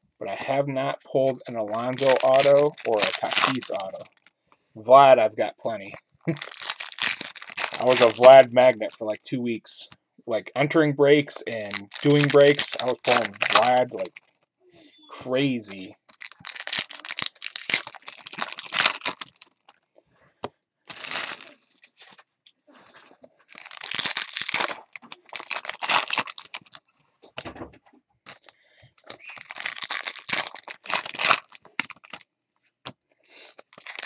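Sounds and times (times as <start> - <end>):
foil wrappers tearing and crinkling: 1.2 - 4.3, 5.7 - 8.5, 11.2 - 14.3, 16.0 - 19.8, 20.9 - 22.1, 23.1 - 26.8, 28.3 - 28.5, 29.1 - 32.2, 33.5 - 34.0.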